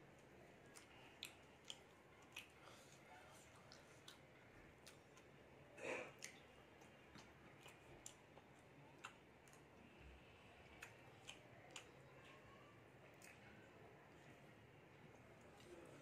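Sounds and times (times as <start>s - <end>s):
chewing mouth sounds: 0.2s - 5.4s, 6.0s - 9.9s, 10.6s - 12.5s.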